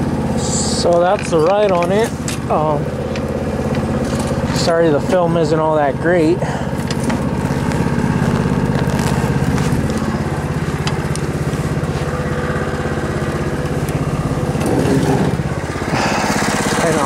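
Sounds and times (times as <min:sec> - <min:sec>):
go-kart engine idling: 0:00.0 - 0:17.0.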